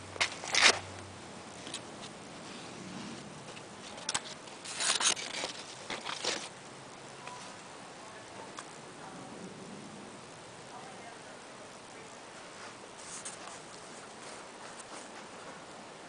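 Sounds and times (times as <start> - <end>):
leaves rustling against camera: 0.0 - 8.7, 11.9 - 16.0
faint steady hiss: 0.0 - 16.0.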